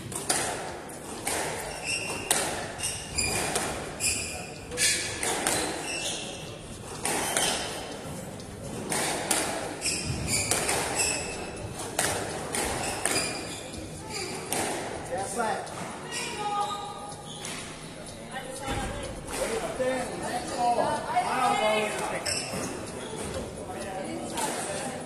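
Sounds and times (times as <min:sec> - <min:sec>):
squash ball hitting rackets and walls: 0:00.0 - 0:06.3, 0:06.9 - 0:13.5, 0:14.3 - 0:15.0
shoes squeaking on wooden floor: 0:00.0 - 0:24.2.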